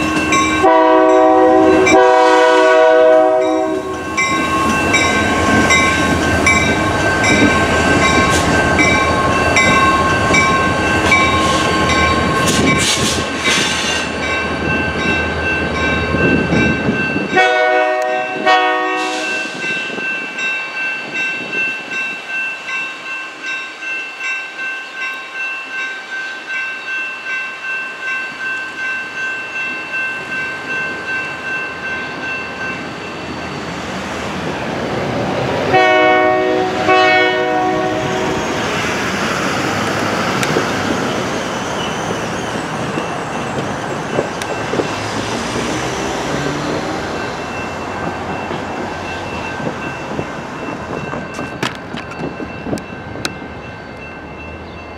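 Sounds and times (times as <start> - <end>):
electronic crossing bell ringing: 0.0 - 2.4, 3.3 - 12.8, 19.1 - 33.5
locomotive horn blasts: 0.0 - 4.3, 17.3 - 19.6, 35.7 - 38.4
diesel locomotives rumbling past: 0.0 - 54.9.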